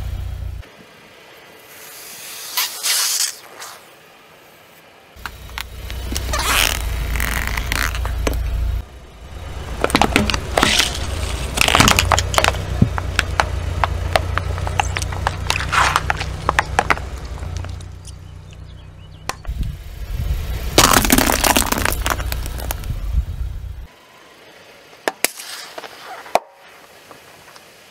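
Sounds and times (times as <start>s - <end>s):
low engine rumble: 0.0s - 2.2s, 3.8s - 25.1s
plastic toys cracking under tyre: 9.8s - 17.9s, 20.8s - 22.9s.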